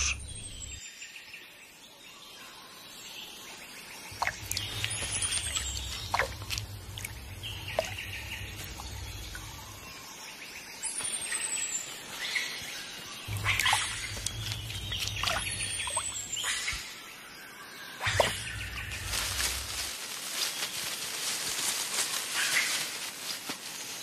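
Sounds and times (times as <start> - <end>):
birds whistling: 18.0 - 19.2.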